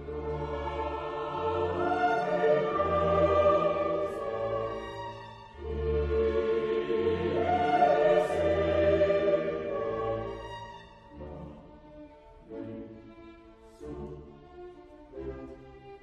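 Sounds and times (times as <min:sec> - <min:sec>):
choir singing long notes: 0:00.0 - 0:11.7
orchestral music: 0:00.0 - 0:16.0.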